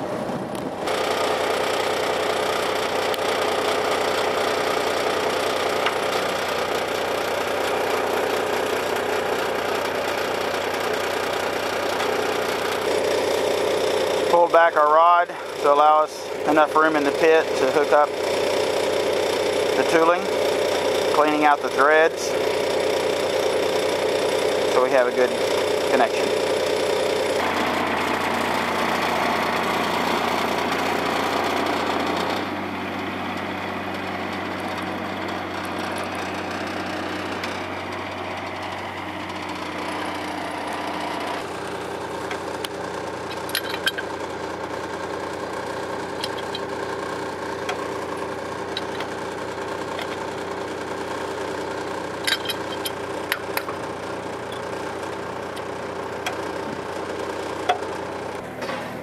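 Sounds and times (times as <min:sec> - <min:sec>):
diesel engine idling: 0:00.0 - 0:59.0
metal clinks of tools: 0:43.3 - 0:44.1, 0:46.2 - 0:46.7, 0:52.2 - 0:53.0.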